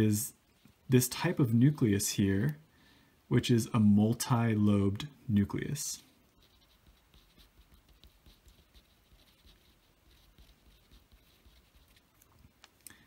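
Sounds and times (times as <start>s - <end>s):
pen scratching on paper: 6.3s - 12.2s.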